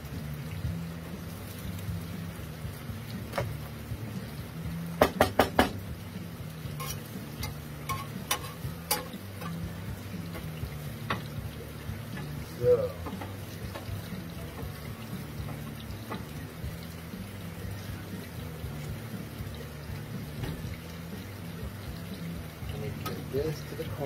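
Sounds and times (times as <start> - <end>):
low frying sizzle: 0.0 - 24.0
metal tongs clicking and scraping: 6.8 - 9.6.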